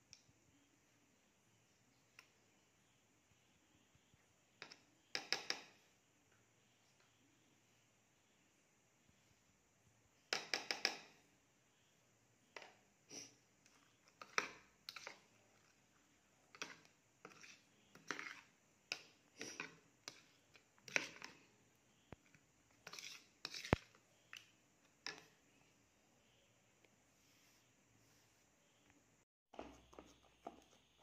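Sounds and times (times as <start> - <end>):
spoon scraping plastic bowl: 12.6 - 25.4, 29.6 - 31.0.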